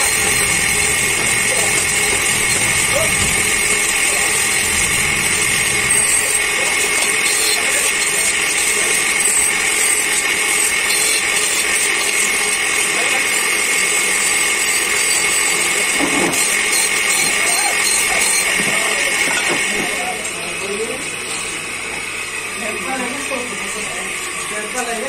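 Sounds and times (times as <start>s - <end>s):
bench grinder grinding metal: 0.0s - 25.0s.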